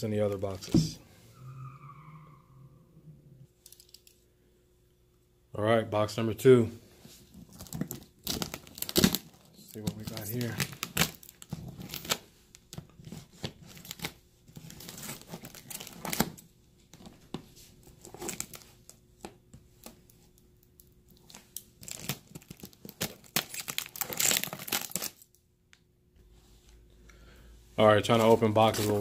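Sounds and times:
plastic wrap tearing and crinkling: 7.5s - 16.4s, 17.9s - 19.0s, 21.1s - 25.4s.

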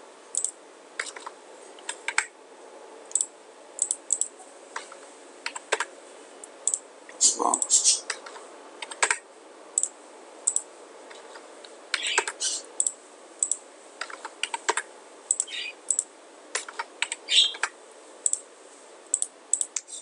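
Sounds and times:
faint steady hiss: 0.0s - 20.0s
keyboard typing: 0.4s - 2.3s, 3.1s - 5.9s, 7.6s - 9.2s, 11.9s - 17.7s.

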